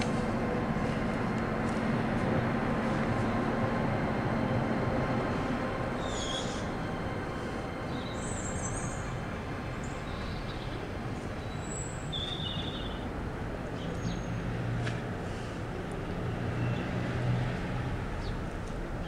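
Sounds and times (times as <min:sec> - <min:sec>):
distant traffic rumble: 0:00.0 - 0:19.0
high bird chirps: 0:06.0 - 0:06.7.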